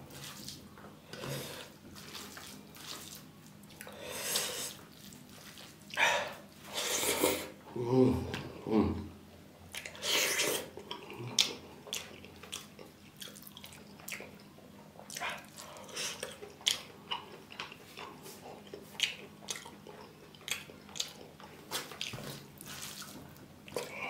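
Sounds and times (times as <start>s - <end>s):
hand squishing rice on steel plate: 1.9s - 6.0s
wet chewing and mouth smacks: 9.7s - 24.0s.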